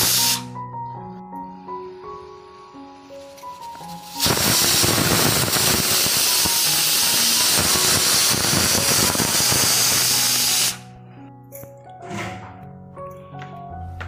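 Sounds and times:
pressure cooker steam hissing: 0:00.0 - 0:00.4, 0:03.8 - 0:10.8.

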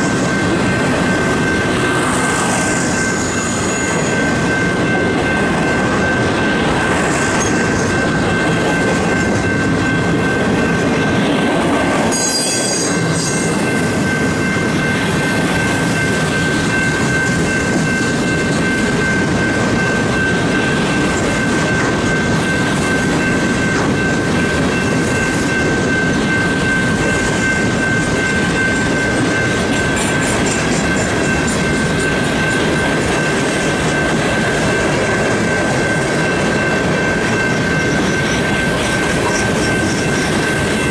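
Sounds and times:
freight train wheels clattering: 0:00.0 - 0:40.9
high-pitched ringing tone: 0:00.0 - 0:40.9.

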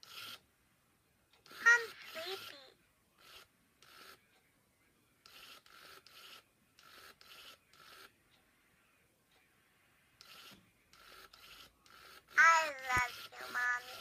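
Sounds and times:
toy doll motor whirring: 0:00.0 - 0:00.4, 0:01.4 - 0:04.3, 0:05.2 - 0:08.2, 0:10.2 - 0:14.0.

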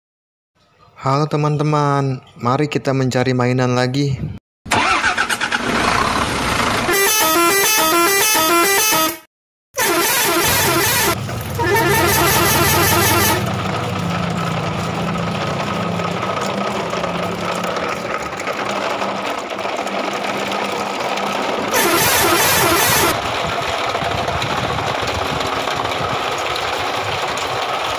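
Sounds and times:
truck engine running: 0:04.7 - 0:09.0, 0:09.8 - 0:27.9
truck air horn melody: 0:06.8 - 0:13.6, 0:21.7 - 0:23.2.

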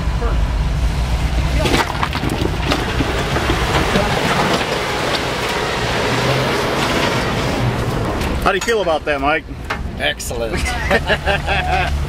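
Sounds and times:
engine running low: 0:00.0 - 0:12.0
tyres crunching over rock: 0:01.6 - 0:08.4.

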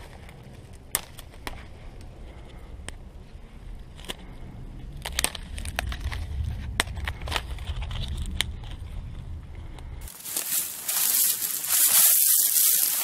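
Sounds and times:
dry stems crackling and snapping: 0:00.0 - 0:02.1, 0:03.8 - 0:08.9, 0:10.0 - 0:13.0
low rumble: 0:01.6 - 0:13.0
steady rushing hiss: 0:10.0 - 0:13.0.

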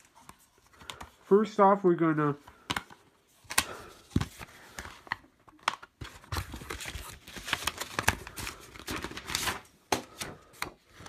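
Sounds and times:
paper rustling: 0:02.5 - 0:11.0.

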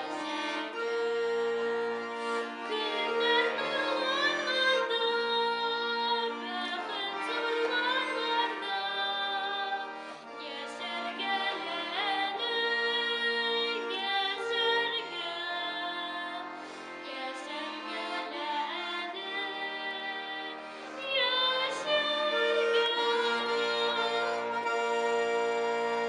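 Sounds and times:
accordion chords: 0:00.0 - 0:26.0.

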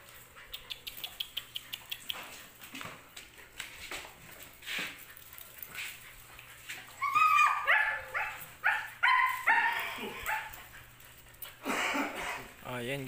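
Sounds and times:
puppy yapping barks: 0:07.0 - 0:10.6.

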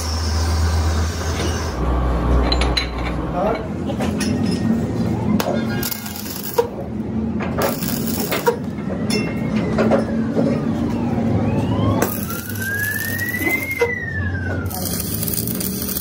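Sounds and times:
siren-like wailing tone: 0:07.7 - 0:16.0.

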